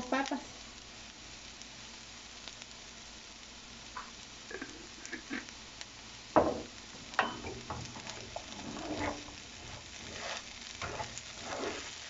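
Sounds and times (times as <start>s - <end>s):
potatoes sizzling in a pan: 0.0s - 12.0s
wooden spatula scraping a pan: 7.5s - 12.0s.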